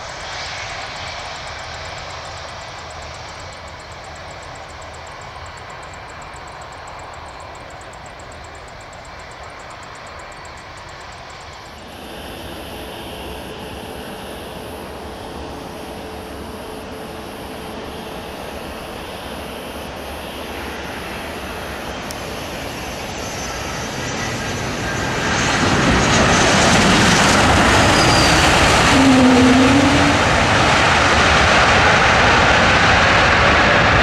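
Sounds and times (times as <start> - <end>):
airliner engines passing: 0.0 - 34.0
brief tone: 27.8 - 30.4.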